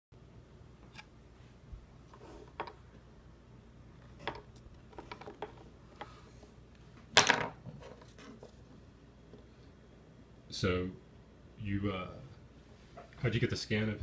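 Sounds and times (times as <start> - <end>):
plastic figurines clicking and tapping: 4.2 - 6.1.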